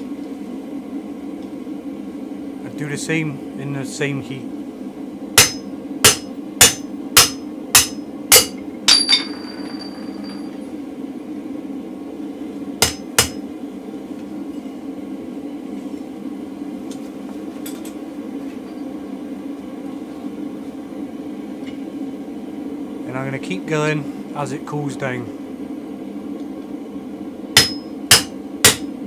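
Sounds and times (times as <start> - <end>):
hammer striking hot metal: 5.4 - 10.4, 12.8 - 13.4, 27.6 - 28.9
metallic ring: 7.8 - 10.6.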